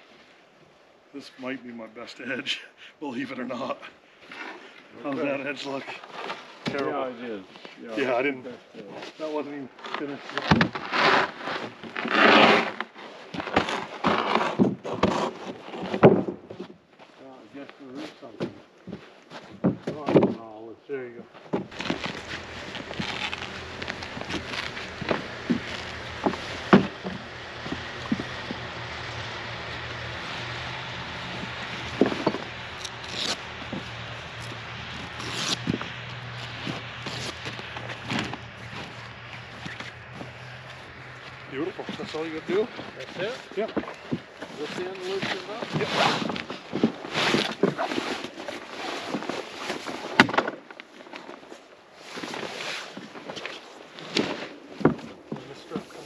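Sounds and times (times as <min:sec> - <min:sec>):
wooden panel scraping over snow: 0:08.8 - 0:16.7, 0:21.6 - 0:56.0
zipper rasps: 0:10.4 - 0:12.9, 0:21.7 - 0:40.6, 0:44.6 - 0:49.4
fabric bag rustling: 0:21.7 - 0:41.0
footsteps crunching in snow: 0:21.7 - 0:50.2.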